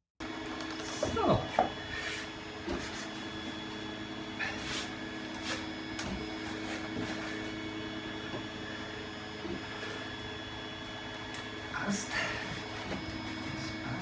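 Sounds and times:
machine hum with high whine: 0.2 - 14.0.

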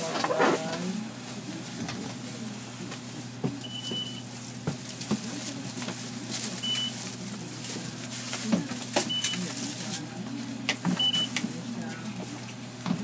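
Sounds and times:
card reader beeping: 6.6 - 7.0, 9.1 - 9.5, 11.0 - 11.4.

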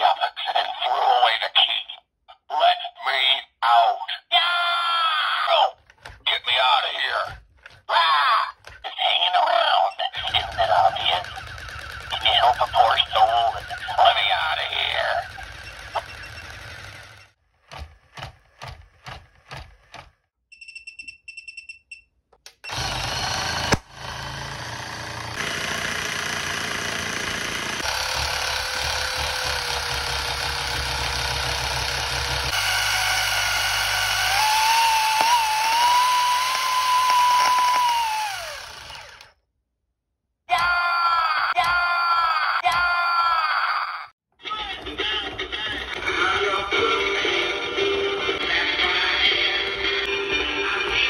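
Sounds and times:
motor rattling buzz: 10.3 - 12.3, 15.2 - 17.4, 22.7 - 39.3.

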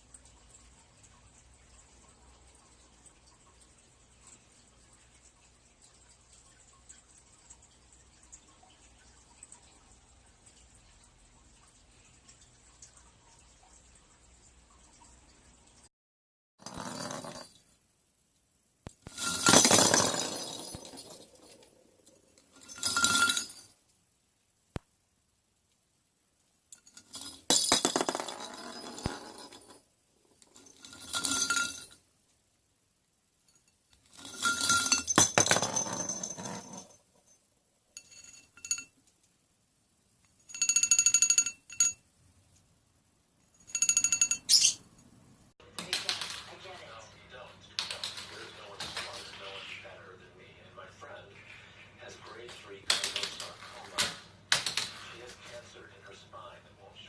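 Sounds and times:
plastic toy balls clattering: 19.1 - 21.7, 26.9 - 29.8, 52.9 - 55.2
bell ringing: 43.7 - 44.8.

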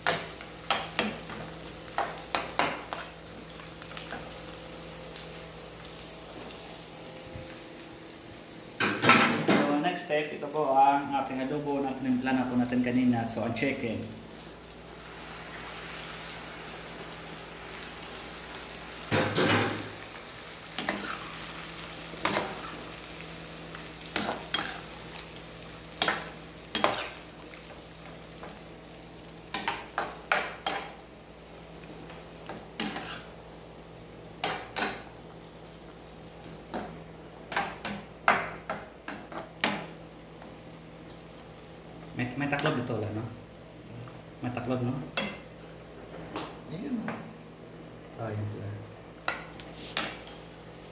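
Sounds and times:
chicken sizzling in a frying pan: 0.0 - 9.1, 9.7 - 43.3
spatula scraping a pan: 32.8 - 33.3.

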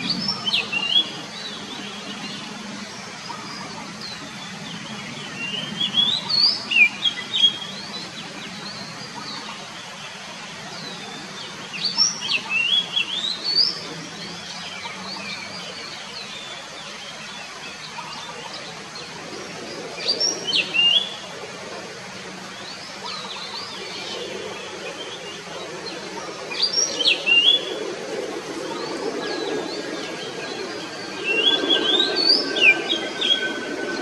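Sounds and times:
bird singing whistled notes: 20.0 - 21.2, 26.5 - 27.7, 28.8 - 34.0.

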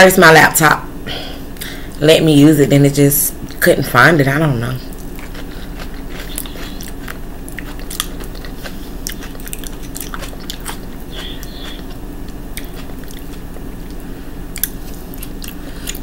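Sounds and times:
steady low hum: 0.0 - 16.0
person chewing with lip-smacks: 4.9 - 16.0.

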